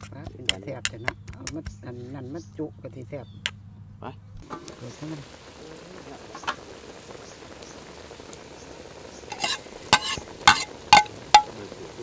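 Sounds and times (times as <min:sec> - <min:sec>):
soup boiling hiss: 0:04.4 - 0:12.0
metal ladle clinking on pot: 0:09.3 - 0:11.5.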